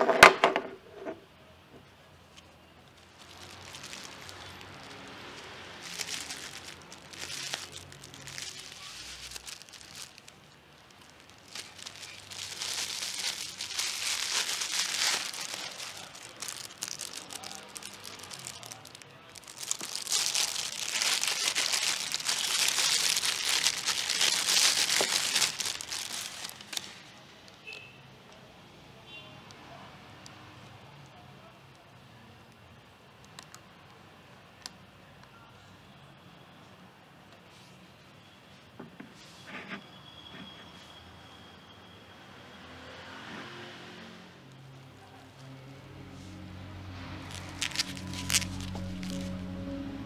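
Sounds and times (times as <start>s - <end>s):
bubble wrap crinkling: 2.8s - 27.2s, 46.2s - 50.0s
plastic bag rustling: 3.0s - 27.1s, 47.1s - 50.0s.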